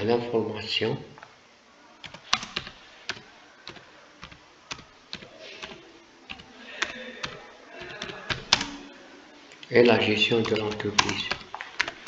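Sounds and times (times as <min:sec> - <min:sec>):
keyboard keystrokes clicking: 0:02.0 - 0:08.8, 0:10.4 - 0:12.0.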